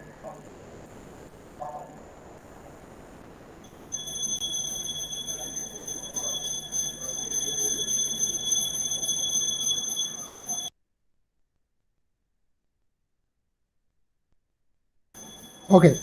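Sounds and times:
faint low hum: 0.0s - 10.7s
high-pitched electronic whine: 3.7s - 10.7s, 15.2s - 16.0s.

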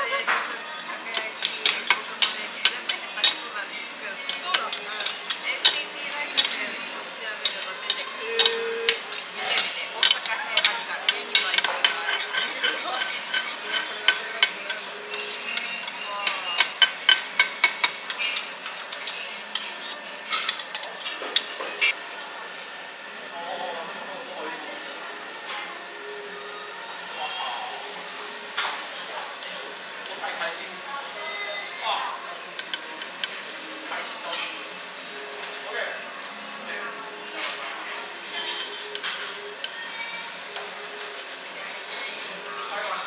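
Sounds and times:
food sizzling: 0.0s - 22.6s, 25.8s - 43.0s
metal spatulas scraping on griddle: 4.3s - 22.0s, 38.2s - 41.2s.

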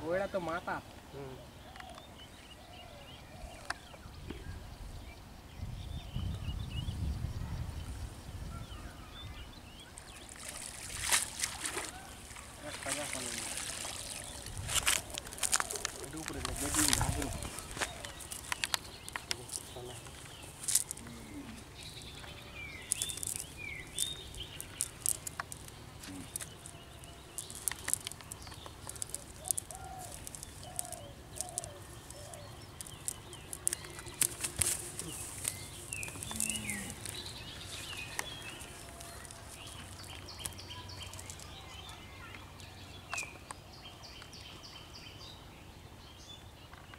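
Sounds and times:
birds chirping: 0.0s - 46.9s
net rustling and clicking: 14.0s - 21.0s, 22.9s - 41.5s.

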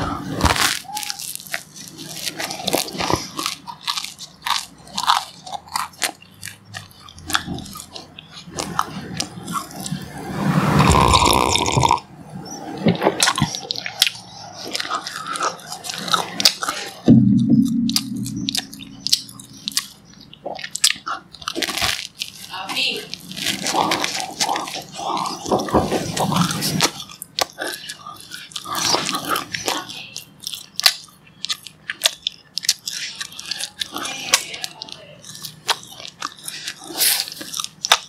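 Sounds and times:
person chewing crunchy bread: 0.0s - 38.0s
short low sound: 17.1s - 19.8s.

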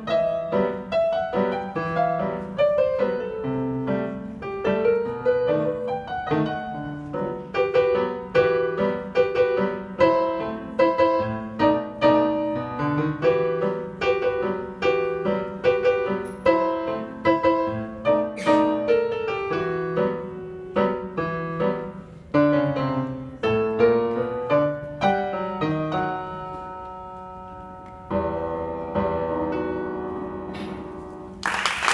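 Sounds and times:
solo piano piece: 0.0s - 31.9s.

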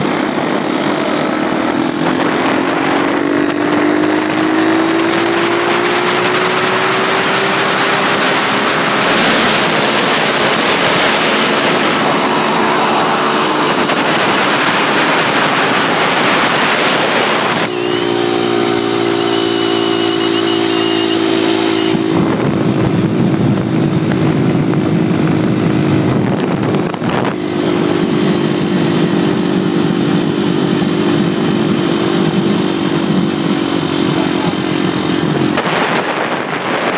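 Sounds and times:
wind buffeting on microphone: 0.0s - 19.1s, 21.3s - 36.9s
pit bike engine revving high: 0.0s - 36.9s.

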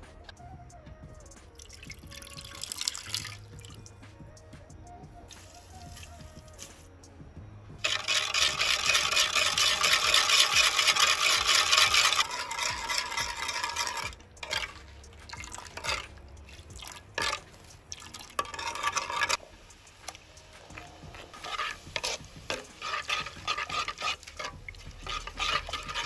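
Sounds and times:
liquid splashing in clay pot: 1.6s - 3.8s, 7.8s - 19.4s, 21.4s - 26.0s
ladle stirring and knocking pot: 7.8s - 19.5s, 20.1s - 26.0s.

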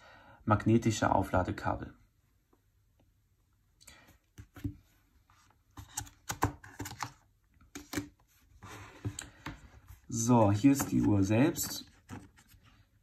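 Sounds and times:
cardboard clicks taps and scrapes: 4.3s - 4.9s, 5.7s - 12.7s.

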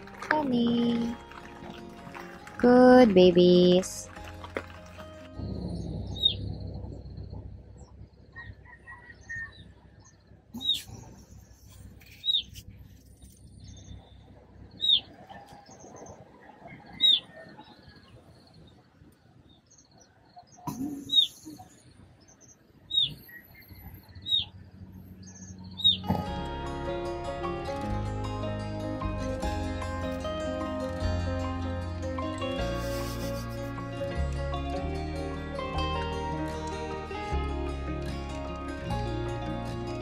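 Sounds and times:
bird chirping: 5.4s - 12.6s, 13.5s - 26.2s.

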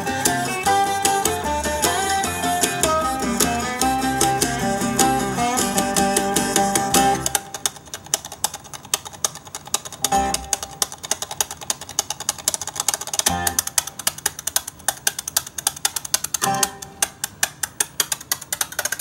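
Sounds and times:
guitar music through speaker: 0.0s - 7.4s, 10.1s - 10.7s, 13.3s - 13.8s, 16.4s - 17.0s
ticking percussion: 0.0s - 19.0s.

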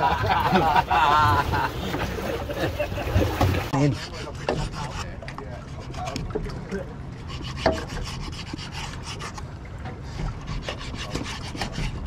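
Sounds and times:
knife sawing through fish: 3.8s - 5.1s, 7.2s - 9.4s, 10.2s - 12.0s.

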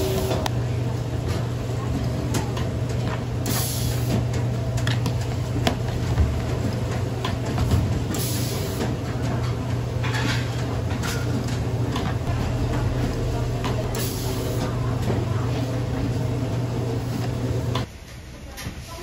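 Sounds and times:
steady low hum: 0.0s - 17.9s.

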